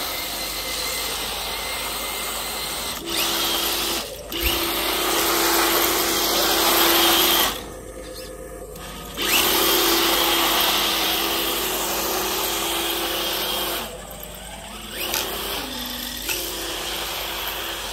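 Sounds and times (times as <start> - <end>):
electric motor whining: 0.0 - 17.9.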